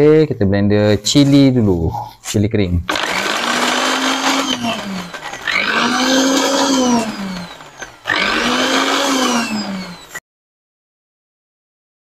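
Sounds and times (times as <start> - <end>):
blender chopping: 2.9 - 10.2.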